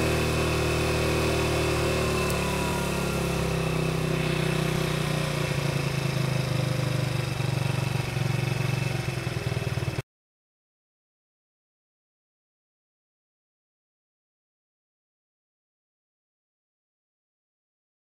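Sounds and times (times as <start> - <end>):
scooter engine running: 0.0 - 10.0.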